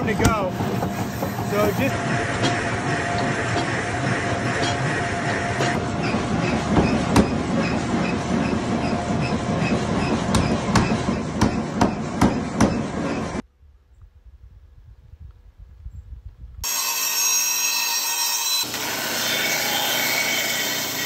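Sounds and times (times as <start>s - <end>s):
forging press humming: 0.0s - 13.4s.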